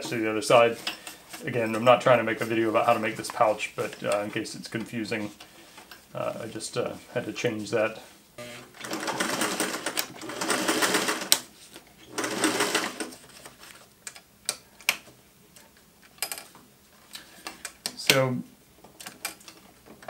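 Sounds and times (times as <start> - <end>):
sewing machine stitching: 8.6 - 11.4, 12.1 - 13.2.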